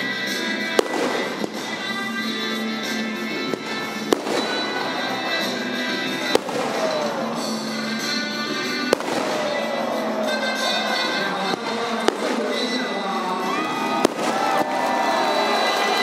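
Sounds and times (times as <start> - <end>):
music playing: 0.0 - 16.0
firework shells bursting: 0.7 - 2.0, 6.2 - 10.0.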